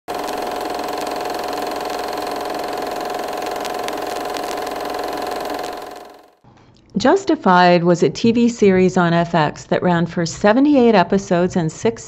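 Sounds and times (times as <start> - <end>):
film projector whirring: 0.0 - 6.4.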